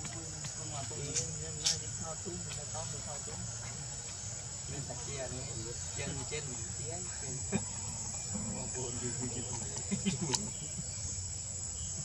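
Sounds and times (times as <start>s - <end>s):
insect chorus drone: 0.0s - 12.0s.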